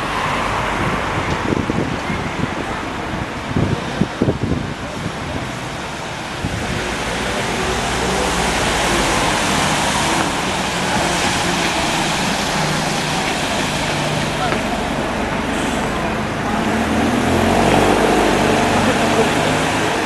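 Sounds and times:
heavy vehicle engine hum: 0.0 - 20.0
steady rushing noise: 0.0 - 20.0.

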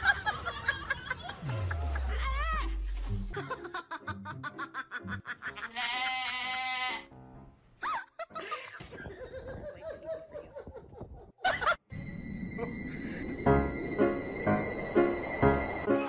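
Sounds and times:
background music: 1.4 - 6.2, 11.9 - 16.0.

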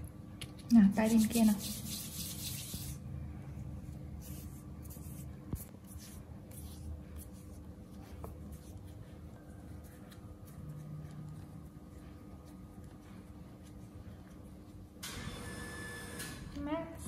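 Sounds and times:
hands brushing fur: 1.0 - 3.0.

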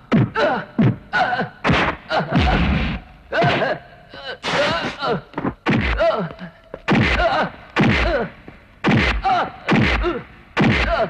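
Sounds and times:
man grunting: 0.3 - 2.7, 3.3 - 5.3, 5.9 - 8.4, 9.2 - 11.0
punch and kick thuds: 1.6 - 3.7, 4.5 - 6.1, 6.9 - 8.2, 8.8 - 11.0.

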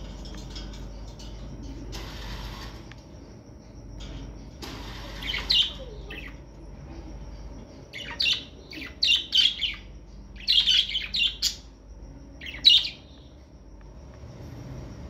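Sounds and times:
budgerigars chirping: 8.0 - 11.6.

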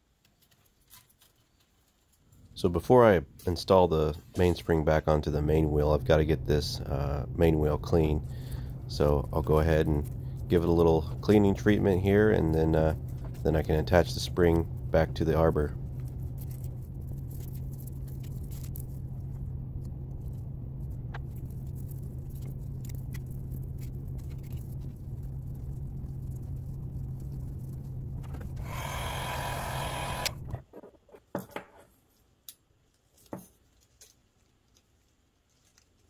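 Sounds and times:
small electric machine humming: 25.3 - 30.6
machine hissing: 28.6 - 30.6.

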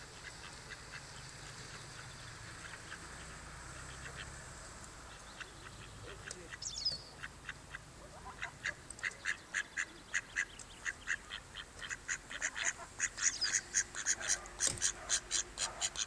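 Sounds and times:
ducklings peeping: 0.1 - 4.4, 5.0 - 16.0.

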